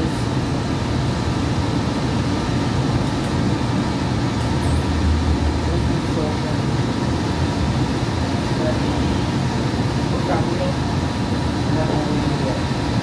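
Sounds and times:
light rail car running noise: 0.0s - 13.0s
deep rumble: 4.6s - 6.6s.

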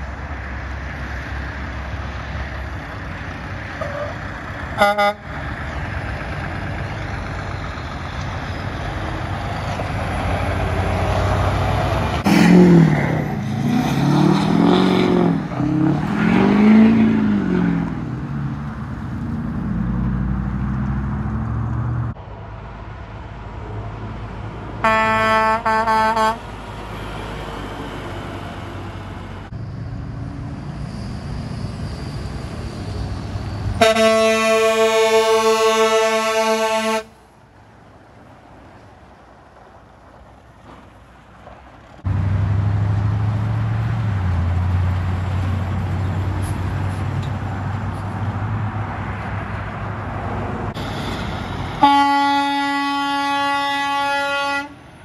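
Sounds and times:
diesel trucks passing on gravel: 0.0s - 55.0s
truck engine revving: 0.8s - 22.2s, 41.9s - 54.6s
truck air horn: 4.8s - 5.4s, 24.8s - 26.5s, 33.8s - 37.2s, 51.8s - 54.8s.

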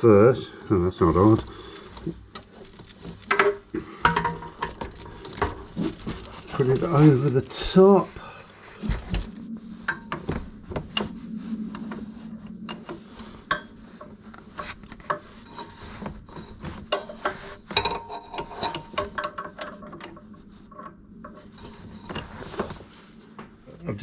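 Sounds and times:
clicks and knocks of tool: 1.8s - 6.3s
hoses rubbing in plastic wrap: 5.2s - 9.4s.

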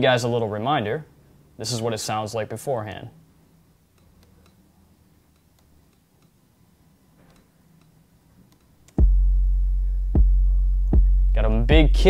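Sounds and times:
electronic kick drum: 9.0s - 12.0s
low bass tone ringing: 9.0s - 12.0s.

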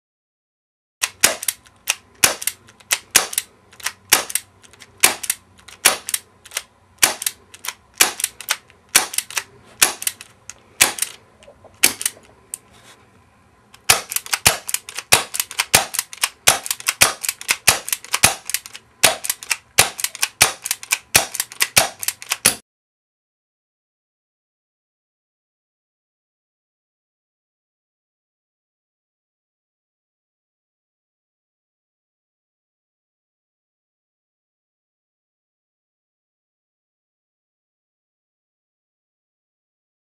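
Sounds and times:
gas revolver firing sharp cracks: 1.0s - 10.2s, 10.8s - 11.2s, 11.8s - 12.2s, 13.8s - 22.6s.

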